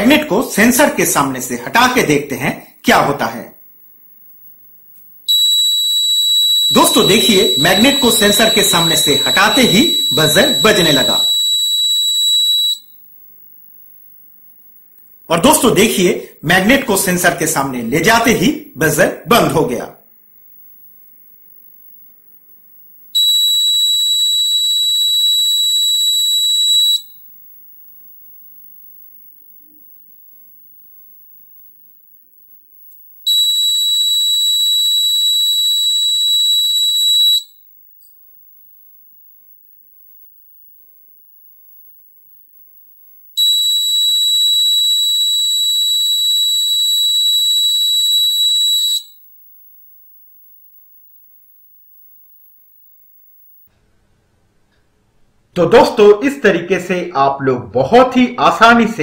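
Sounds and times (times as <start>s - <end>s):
high-pitched alarm buzzer: 5.3s - 13.0s, 23.2s - 27.2s, 33.3s - 37.6s, 43.4s - 49.2s.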